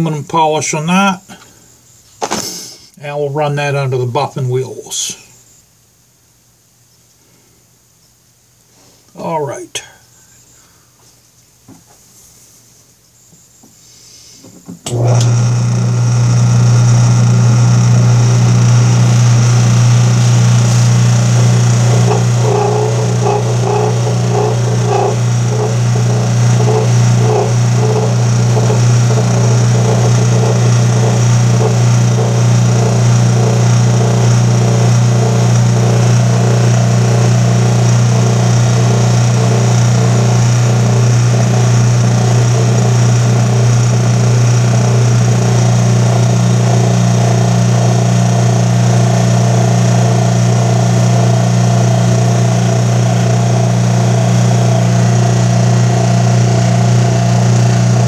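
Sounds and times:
bench buffer motor hum: 0:14.9 - 0:58.0.

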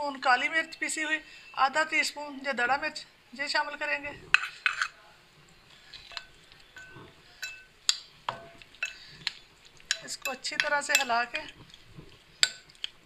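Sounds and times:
spoon scraping a ceramic saucer: 0:04.3 - 0:05.0
spoon clinking against glass bowl: 0:06.0 - 0:07.7, 0:08.3 - 0:09.0, 0:09.9 - 0:11.6, 0:12.4 - 0:12.8.

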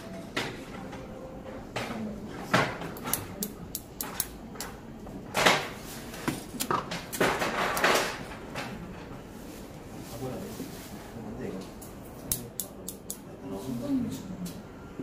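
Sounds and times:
scissors snipping hair: 0:03.0 - 0:04.8, 0:12.2 - 0:13.2.

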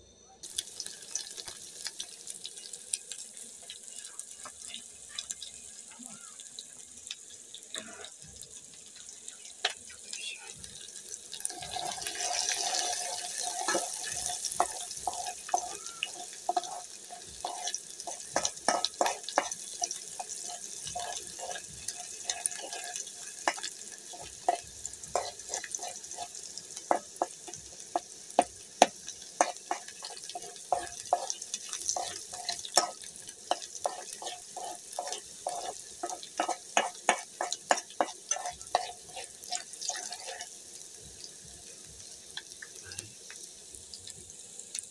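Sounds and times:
onions sizzling in oil: 0:00.4 - 0:44.9
metal spoon clinking and scraping pot: 0:11.4 - 0:40.6.

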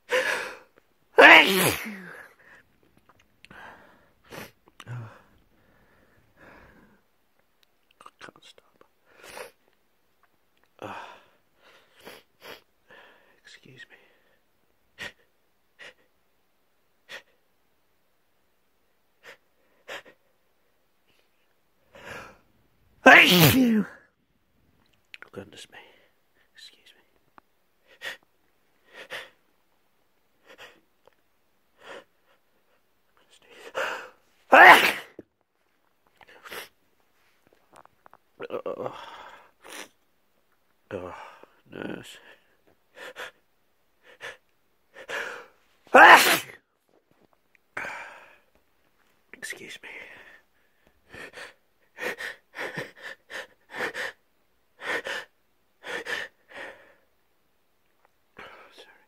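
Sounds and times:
person sneezing and gasping: 0:00.1 - 0:02.6, 0:23.0 - 0:24.0, 0:33.6 - 0:35.2, 0:45.0 - 0:46.6.

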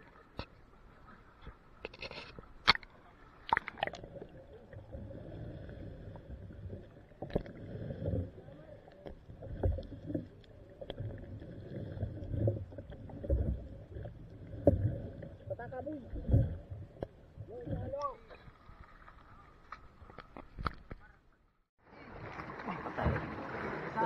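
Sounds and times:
water sloshing: 0:00.0 - 0:21.0, 0:21.9 - 0:24.0
muffled underwater rumbling: 0:03.5 - 0:21.1.

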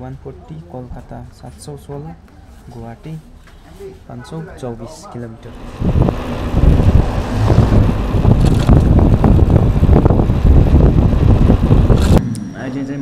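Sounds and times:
wind rumble on microphone: 0:05.5 - 0:12.2.

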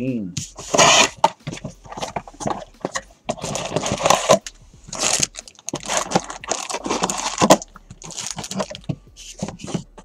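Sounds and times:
wrappers crinkling: 0:01.8 - 0:09.8.

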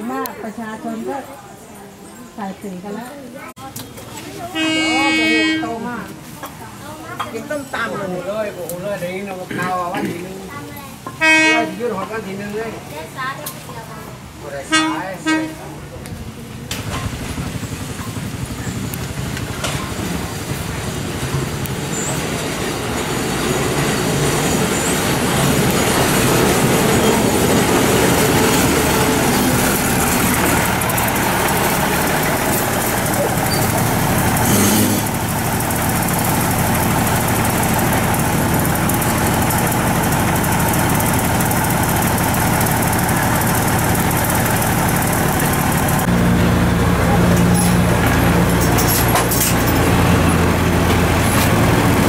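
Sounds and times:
train rolling slowly: 0:10.9 - 0:52.0
diesel engines idling: 0:16.2 - 0:52.0.

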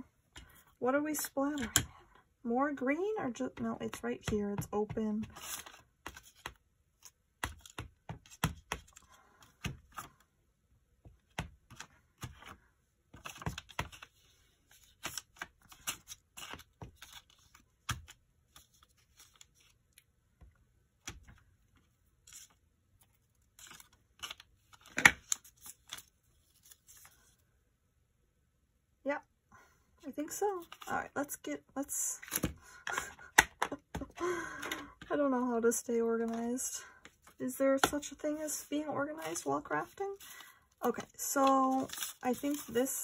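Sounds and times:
paper handling: 0:36.2 - 0:43.0.

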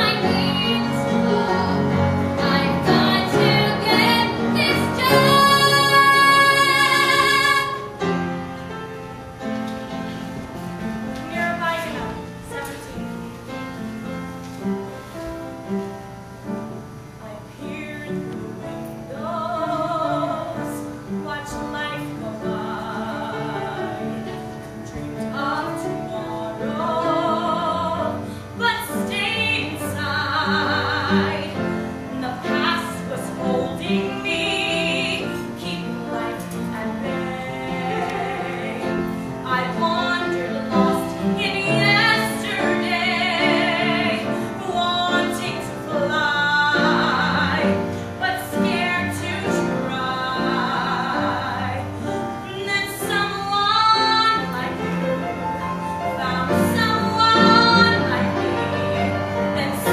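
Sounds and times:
girl singing with vibrato: 0:00.0 - 0:08.0.

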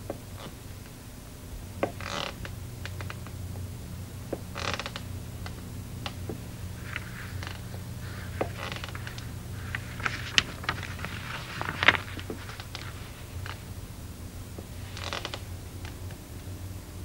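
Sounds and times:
low hum: 0:00.0 - 0:17.0
short rustles: 0:06.3 - 0:13.7.

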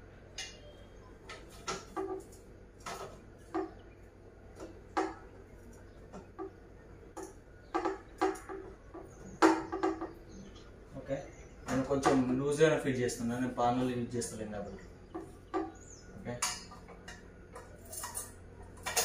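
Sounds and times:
metal trolley parts clicking and knocking: 0:15.1 - 0:19.0.

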